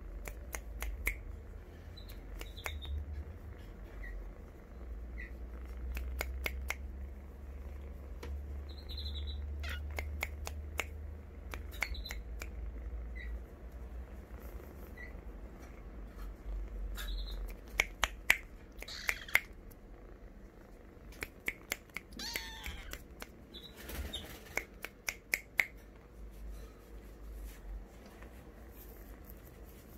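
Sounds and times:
sharp clicks and taps: 0:00.1 - 0:01.4, 0:05.7 - 0:07.1, 0:09.6 - 0:12.6, 0:17.4 - 0:19.8, 0:21.1 - 0:23.4, 0:24.0 - 0:26.1
kitten mewing: 0:09.4 - 0:13.4, 0:16.8 - 0:19.7, 0:20.8 - 0:23.4.

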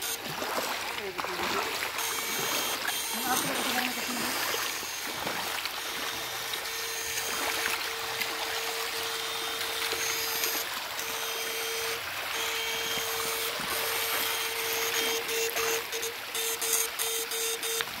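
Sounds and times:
creek water over stones: 0:00.0 - 0:18.0
electrical whine: 0:01.4 - 0:18.0.

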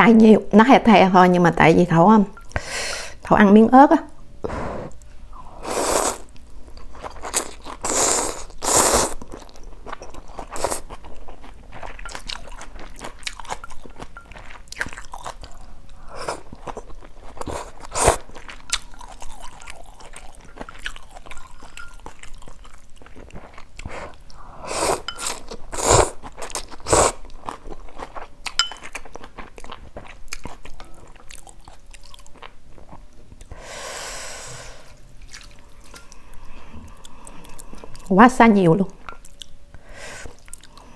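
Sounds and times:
slurping noodles: 0:05.6 - 0:06.3, 0:07.2 - 0:09.2, 0:23.8 - 0:26.2, 0:26.8 - 0:27.2.

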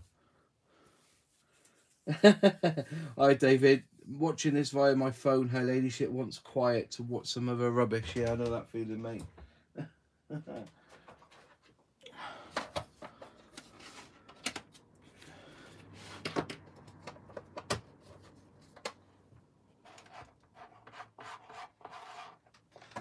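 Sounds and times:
rubbing and rustling: 0:17.9 - 0:23.0.

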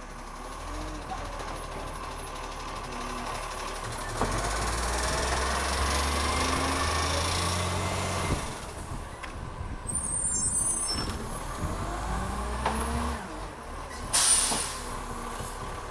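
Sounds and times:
garbage truck engine pulling away: 0:00.0 - 0:15.9
air brake hiss: 0:14.1 - 0:14.9.

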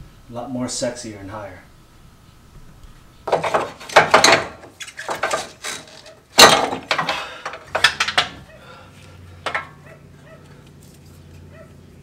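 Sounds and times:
coil spring clanking and scraping: 0:03.2 - 0:08.5, 0:09.3 - 0:09.9.

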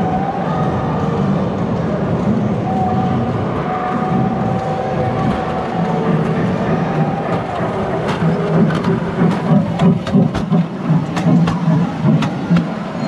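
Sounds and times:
ride-on train rumbling on track: 0:00.0 - 0:13.0
wheels clicking over rail joints: 0:05.2 - 0:13.0.

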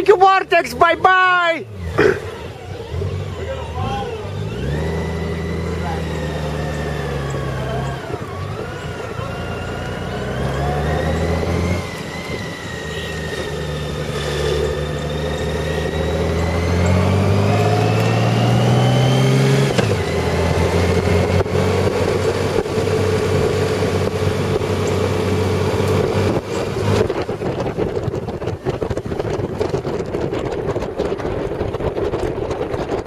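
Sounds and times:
motorcycle engine accelerating: 0:00.0 - 0:33.0
wind noise on microphone: 0:25.9 - 0:33.0.

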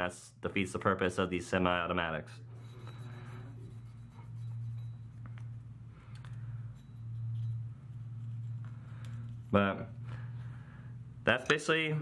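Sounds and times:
steady low hum: 0:00.0 - 0:12.0
swab scrubbing metal: 0:02.5 - 0:05.6, 0:06.5 - 0:10.5.

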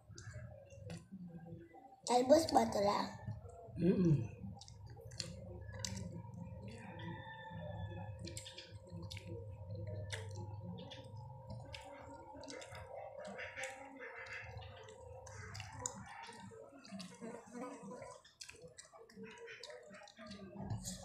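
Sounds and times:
chewing and lip smacks: 0:04.3 - 0:21.0.

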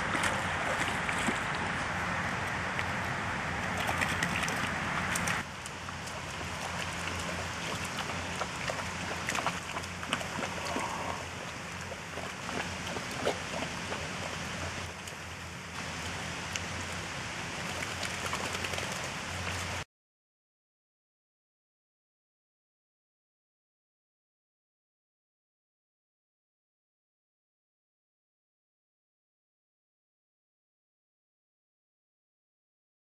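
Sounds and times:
dogs splashing in puddle: 0:00.0 - 0:19.8
steady outdoor hiss: 0:00.0 - 0:19.8.

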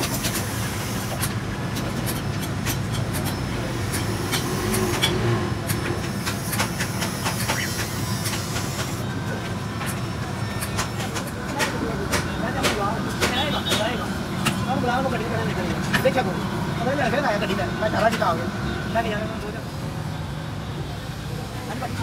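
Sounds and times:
lead grids clicking in boxes: 0:00.0 - 0:09.0.

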